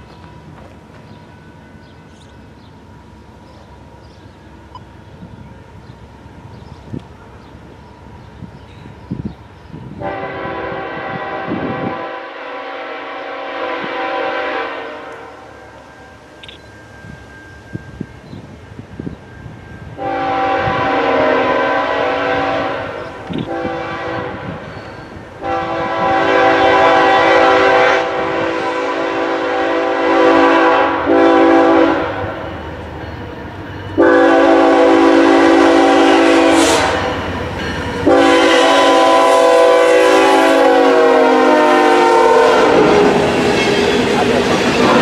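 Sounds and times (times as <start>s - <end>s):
passing train rumble: 0.0s - 45.0s
locomotive air horn blasts: 10.0s - 15.6s, 20.0s - 24.7s, 25.4s - 32.4s, 34.0s - 37.2s, 38.0s - 43.3s.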